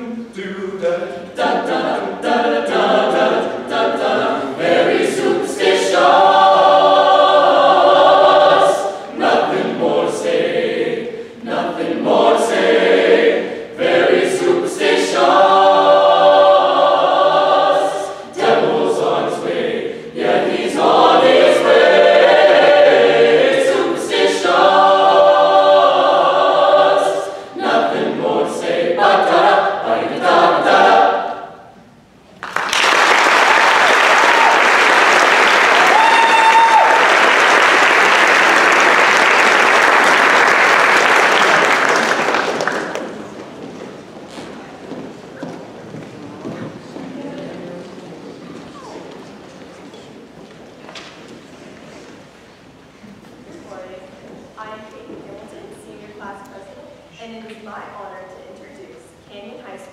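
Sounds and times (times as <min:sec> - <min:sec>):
choir singing a cappella: 0:00.0 - 0:31.9.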